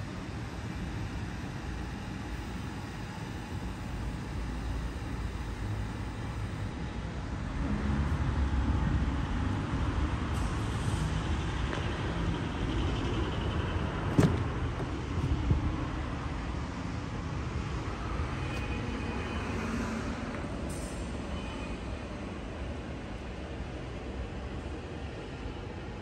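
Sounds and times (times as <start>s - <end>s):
car door latch click: 14.1s - 15.4s.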